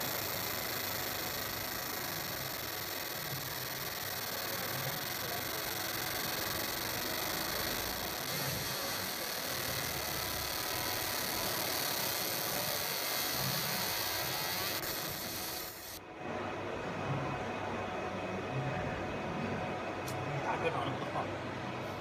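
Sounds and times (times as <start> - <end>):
laser marking high hiss: 0.0 - 16.0.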